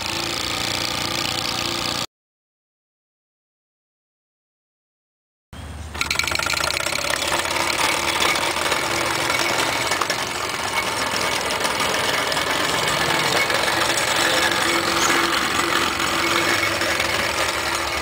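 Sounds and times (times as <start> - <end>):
toy steam engine chuffing: 0.0 - 2.1, 5.9 - 18.0.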